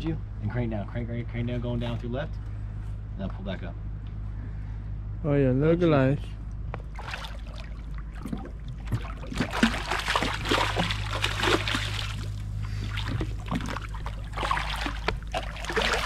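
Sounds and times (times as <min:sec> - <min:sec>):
low steady hum: 0:00.0 - 0:16.0
fish thrashing and splashing: 0:06.9 - 0:16.0.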